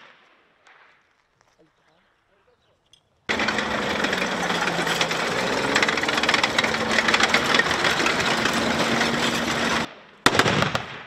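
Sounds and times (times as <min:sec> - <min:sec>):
steel tracks clattering: 0:03.3 - 0:09.9
tracked vehicle engine: 0:03.3 - 0:09.9.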